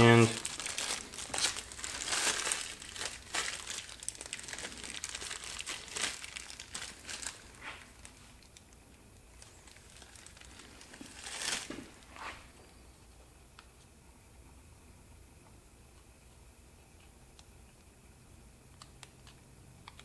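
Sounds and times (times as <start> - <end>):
plastic bag crinkling: 0.0 - 8.7, 9.3 - 12.5.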